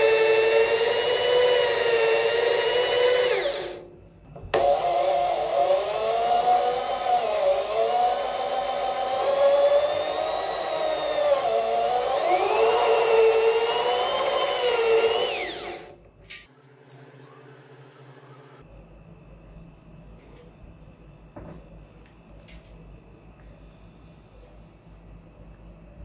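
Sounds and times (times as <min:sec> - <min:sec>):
electric drill drilling into sheet metal: 0:00.0 - 0:03.8, 0:04.5 - 0:16.0.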